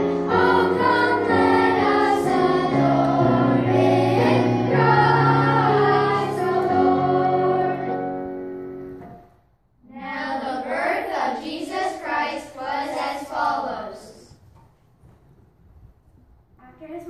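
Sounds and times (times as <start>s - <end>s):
children's choir singing: 0.0s - 8.4s, 9.9s - 14.4s.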